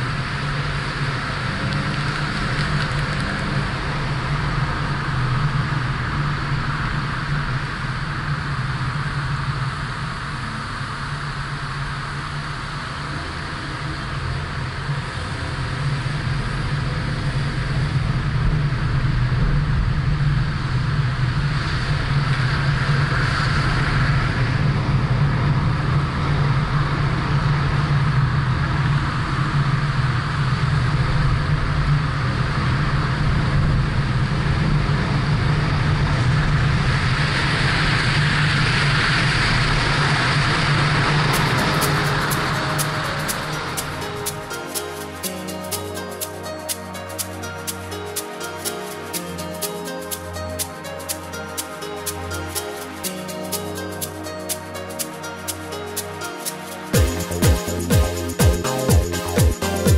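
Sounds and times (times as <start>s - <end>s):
car engine and tyre noise: 0.0s - 42.6s.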